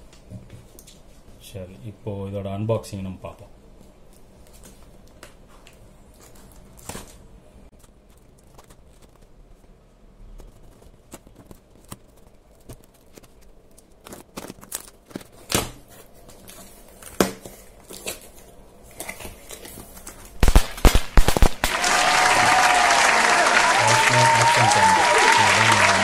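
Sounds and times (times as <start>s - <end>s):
loud snaps: 20.4s - 26.0s.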